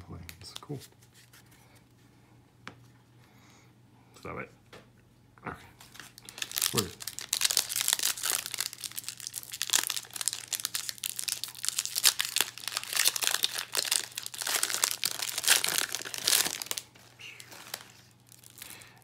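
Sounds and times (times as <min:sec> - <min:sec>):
foil wrapper crinkling and tearing: 0:05.8 - 0:19.0.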